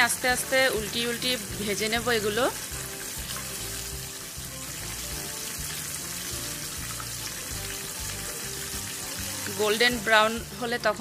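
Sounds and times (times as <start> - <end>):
fish sizzling in hot oil: 0.0 - 11.0
quiet background music: 0.0 - 11.0.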